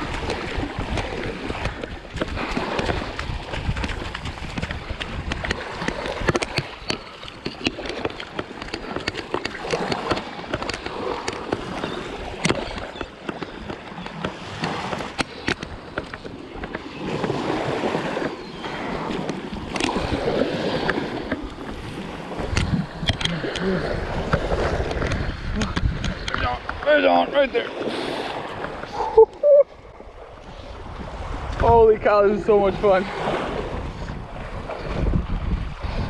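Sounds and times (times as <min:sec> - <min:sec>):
surf washing onto beach: 0:00.0 - 0:36.0
sharp clicks and knocks: 0:03.8 - 0:11.7, 0:22.5 - 0:23.7.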